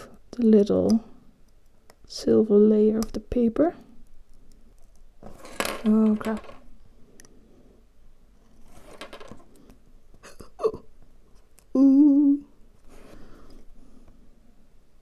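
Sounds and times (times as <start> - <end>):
woman humming: 10.2 - 10.9, 11.7 - 12.5.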